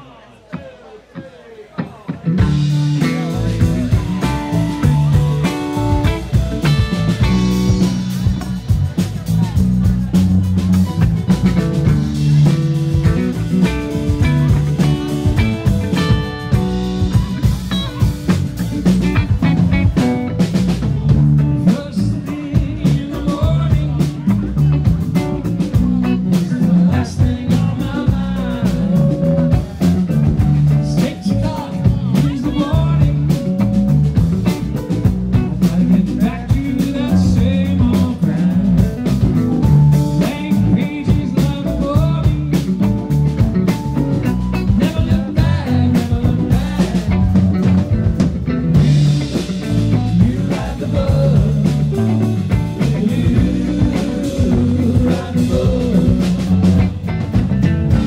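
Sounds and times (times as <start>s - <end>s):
live rock band playing: 1.8s - 58.0s.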